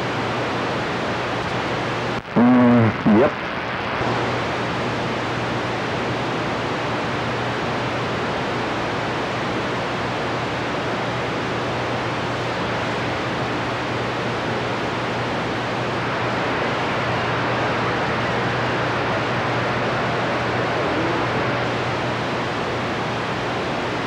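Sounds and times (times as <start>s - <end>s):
radio static hiss: 0.0s - 7.1s, 11.7s - 24.0s
low steady hum: 11.8s - 24.0s.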